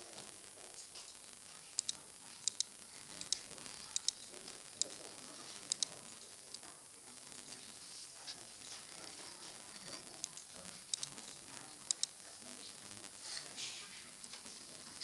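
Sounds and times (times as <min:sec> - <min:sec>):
faint steady hiss: 0:00.0 - 0:15.0
computer mouse button clicking: 0:01.8 - 0:03.4.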